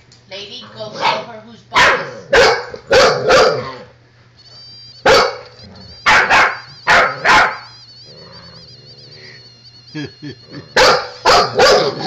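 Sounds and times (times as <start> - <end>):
puppy barking: 0.8 - 3.9, 5.0 - 7.8, 10.8 - 12.0
high wavering whine: 4.4 - 12.0.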